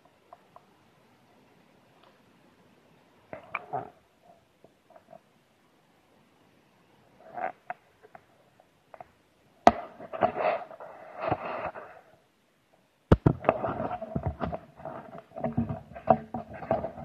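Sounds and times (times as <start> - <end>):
scraping: 13.4 - 17.0.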